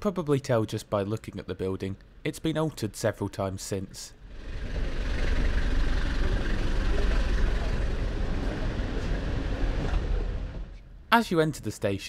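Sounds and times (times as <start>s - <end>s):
tyre and road noise: 4.2s - 10.8s
vehicle engine rumble: 4.2s - 11.0s.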